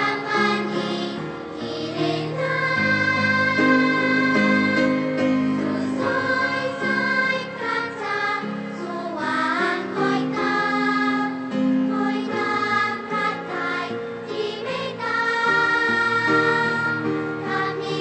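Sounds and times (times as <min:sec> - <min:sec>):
girls' choir singing: 0:00.0 - 0:18.0.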